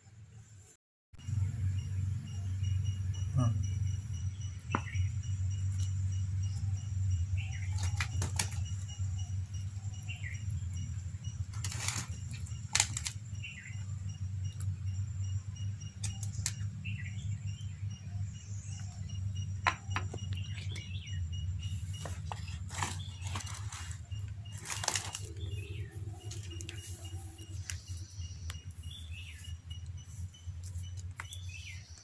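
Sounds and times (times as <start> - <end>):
faint high chirps: 1.2 - 11.0
steady low hum: 1.2 - 32.0
ladle clicks and scrapes: 11.5 - 13.2
leaf rustling: 11.5 - 13.2, 22.3 - 27.9.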